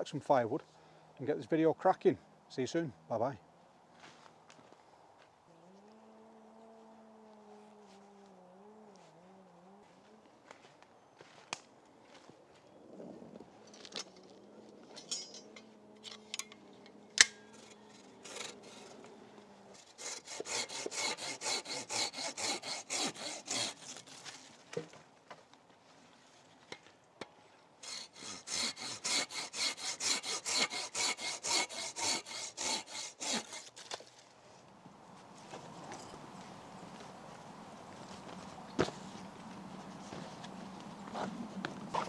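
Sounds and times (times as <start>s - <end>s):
hand saw cutting wood: 17.2s - 19.0s, 19.7s - 24.5s, 27.8s - 34.2s.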